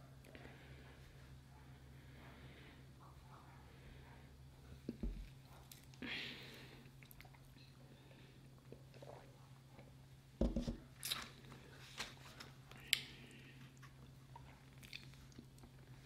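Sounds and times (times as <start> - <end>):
faint chewing: 4.7 - 6.0, 6.8 - 7.8, 12.4 - 16.0
paper cup set down on table: 10.4 - 10.8.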